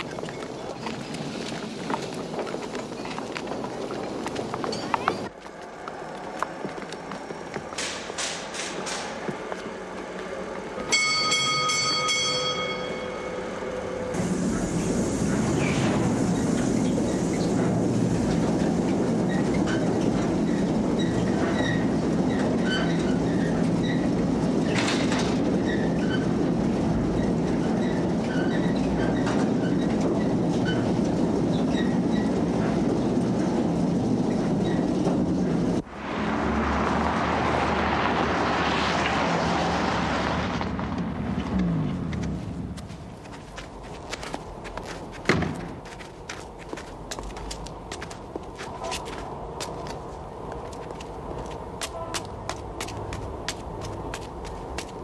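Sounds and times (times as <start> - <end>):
high wheel squeaks: 0.0 - 5.4, 15.3 - 35.8, 41.7 - 55.0
train rumbling on rails: 0.0 - 55.0.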